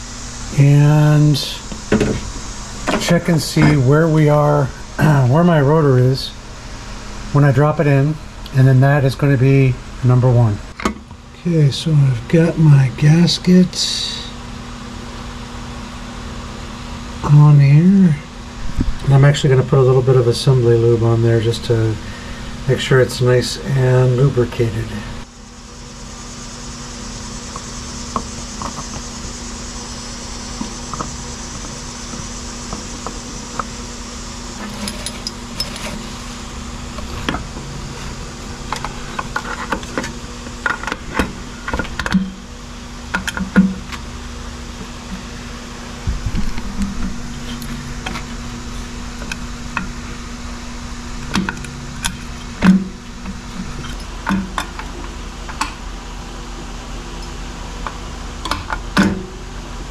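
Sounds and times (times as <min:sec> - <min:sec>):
steady background hum: 0:00.0 - 0:59.9.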